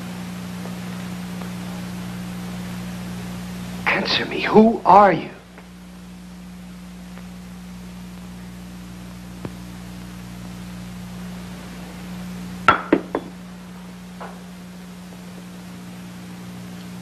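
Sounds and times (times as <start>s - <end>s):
steady low hum: 0.0s - 17.0s
sharp knocks: 12.7s - 13.3s.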